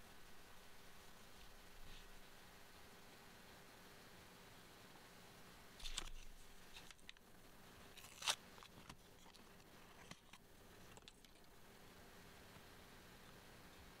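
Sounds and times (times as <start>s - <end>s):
foil packet crinkling: 5.8s - 7.2s, 7.8s - 11.5s
foil packet ripping: 5.8s - 7.2s, 7.8s - 11.4s.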